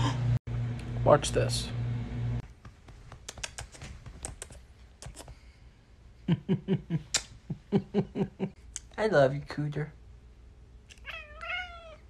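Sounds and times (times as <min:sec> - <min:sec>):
lip-smacking kiss sounds: 0:03.2 - 0:05.4, 0:07.1 - 0:07.4.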